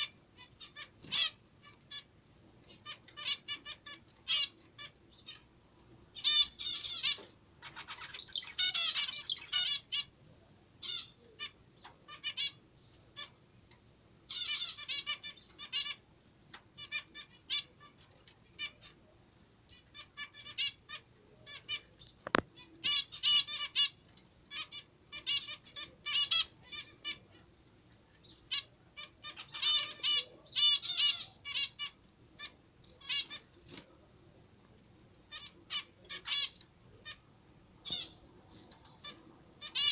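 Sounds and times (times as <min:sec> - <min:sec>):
zebra finches calling and singing: 0:00.0 - 0:05.5, 0:06.2 - 0:10.1, 0:14.3 - 0:19.0, 0:19.6 - 0:33.8, 0:35.3 - 0:39.9.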